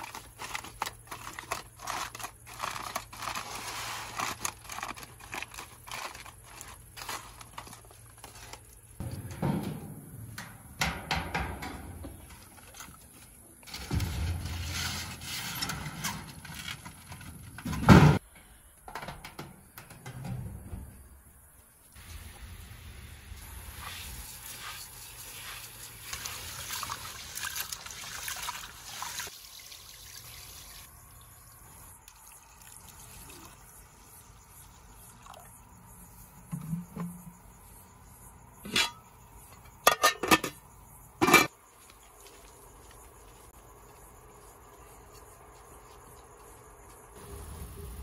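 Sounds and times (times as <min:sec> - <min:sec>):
liquid pouring and trickling: 0:25.9 - 0:33.8.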